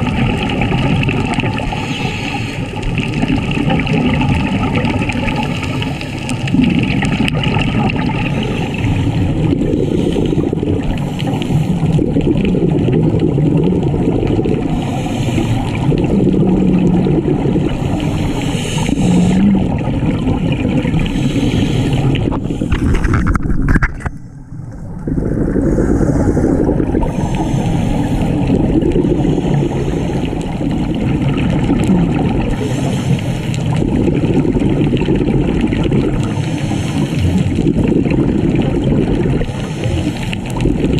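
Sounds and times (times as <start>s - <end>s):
muffled underwater rumble: 0.0s - 40.9s
scuba exhaust bubbles: 0.0s - 40.9s.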